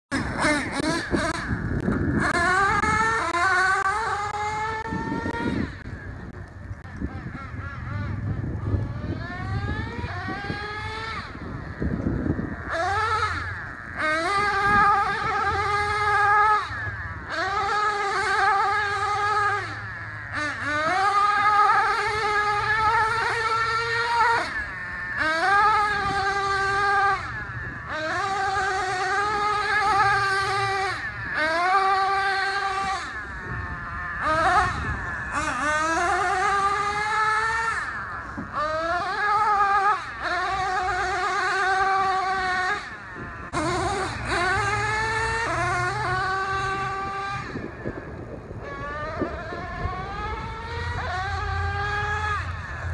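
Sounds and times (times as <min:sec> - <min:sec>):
small nitro engine revving: 0:00.1 - 0:52.9.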